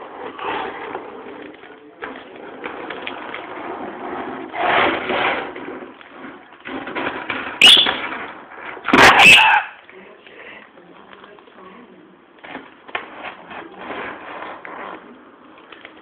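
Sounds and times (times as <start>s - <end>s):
parrot squawking and screeching: 7.6s - 8.0s, 9.0s - 9.8s.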